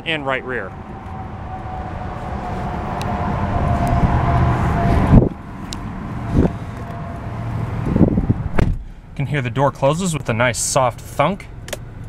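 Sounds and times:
outside noise: 0.0s - 12.0s
car door shutting: 7.9s - 8.8s.

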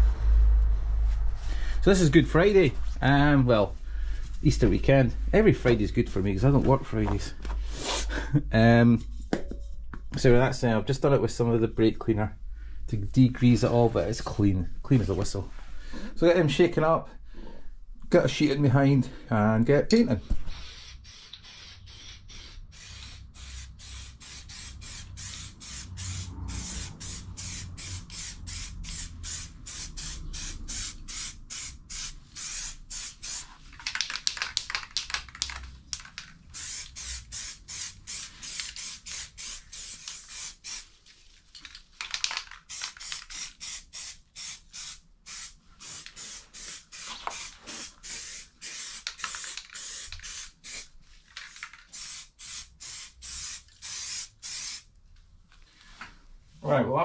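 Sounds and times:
spray-paint can hissing: 20.6s - 40.9s, 42.1s - 50.9s, 51.5s - 54.9s.

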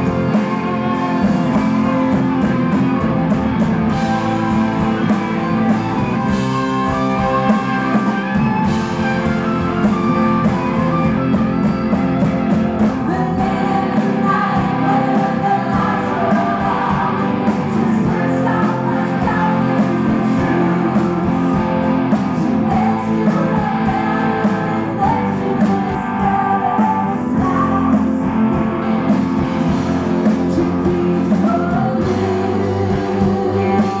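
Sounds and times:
rock band playing: 0.0s - 34.0s
person singing: 13.0s - 28.9s, 30.1s - 34.0s.

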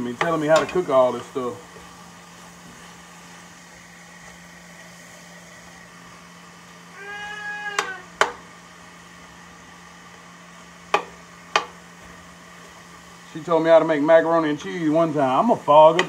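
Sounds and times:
spoon tapping a pot: 10.9s - 11.8s.

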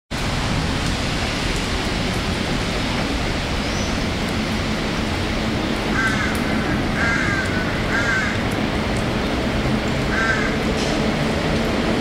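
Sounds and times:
heavy rain hissing: 0.1s - 12.0s.

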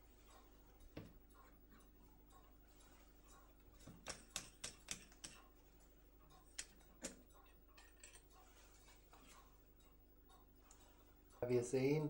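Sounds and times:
faint lathe clicks and ticks: 0.2s - 5.5s, 9.1s - 11.8s.

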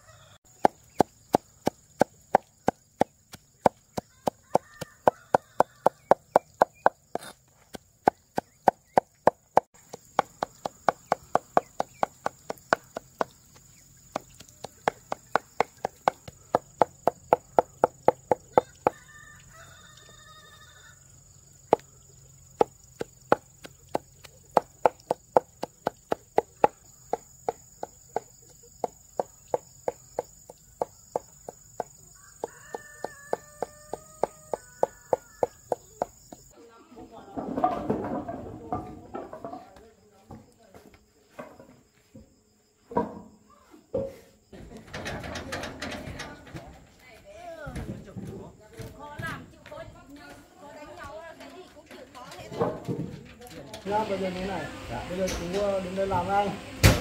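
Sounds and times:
chickens calling: 0.0s - 36.5s
knife chopping rapidly: 0.5s - 19.0s, 22.6s - 36.2s.

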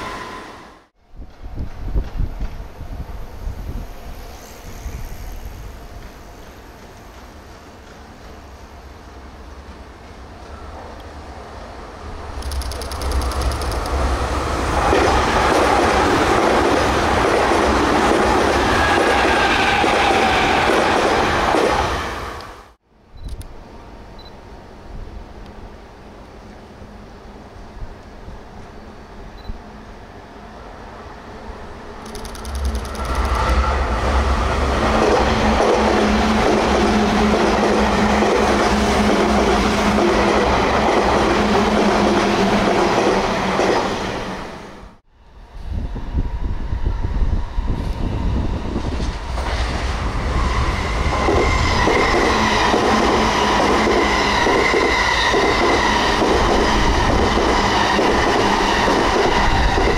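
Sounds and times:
train wheels rumbling on rails: 1.1s - 22.8s, 32.0s - 44.7s, 45.5s - 59.9s.

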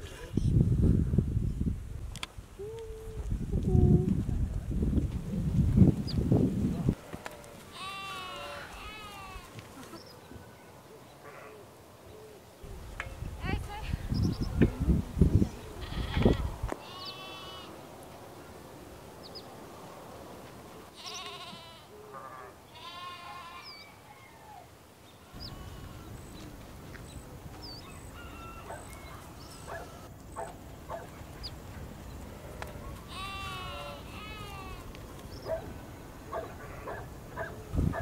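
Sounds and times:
outdoor background noise: 0.0s - 38.0s
goats bleating: 7.1s - 9.5s, 15.8s - 17.7s, 21.0s - 23.7s, 25.2s - 26.1s, 33.1s - 34.9s.

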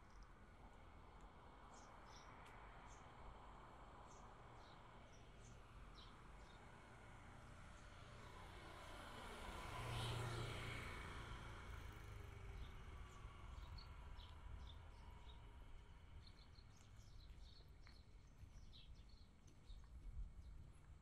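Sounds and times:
low rumble of background noise: 0.0s - 21.0s
motor scooter engine: 9.1s - 14.3s.

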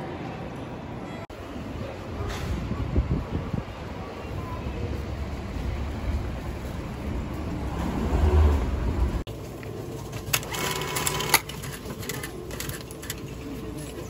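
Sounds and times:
ticket machine whirring: 10.2s - 13.8s
ticket machine clicks: 10.3s - 13.3s.

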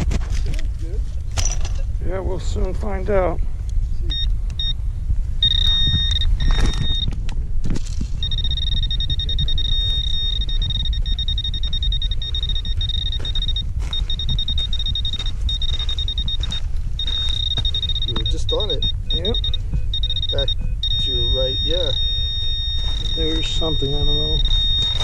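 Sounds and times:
wind rumble on microphone: 0.0s - 25.0s
metal detector beeping tone: 4.1s - 4.8s, 5.4s - 7.1s, 8.1s - 25.0s.

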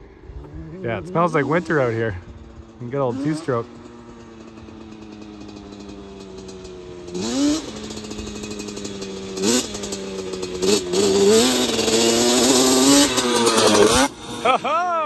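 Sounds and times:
two-stroke engine revving: 0.4s - 15.0s.

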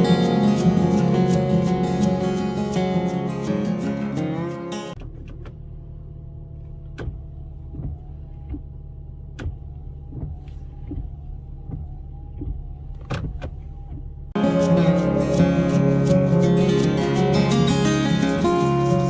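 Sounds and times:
windshield wiper running: 5.0s - 14.4s.

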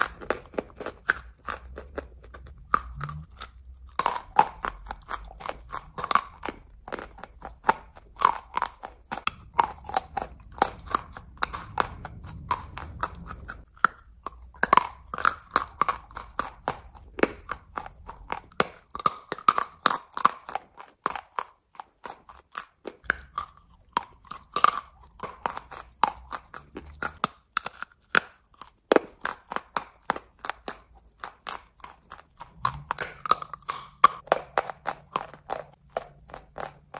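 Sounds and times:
chalk crunching between teeth: 0.0s - 36.9s.

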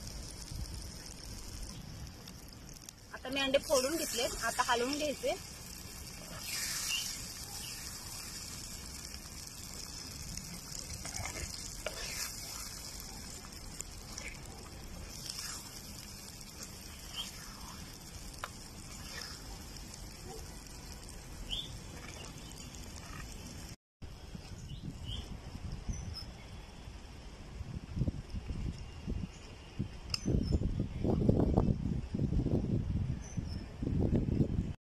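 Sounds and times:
eggs sizzling on hot pan: 0.0s - 23.8s.

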